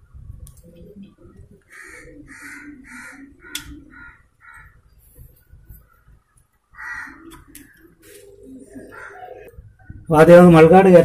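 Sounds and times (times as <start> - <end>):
crow cawing: 1.7 - 4.8, 6.7 - 9.5.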